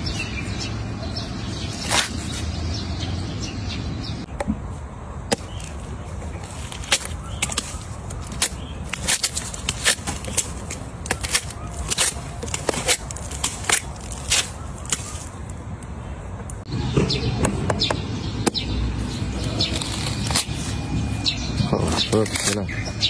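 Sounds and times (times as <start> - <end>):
watermelon rind splitting: 5.3 - 15.6, 19.4 - 20.6
watermelon flesh cracking: 6.4 - 15.6.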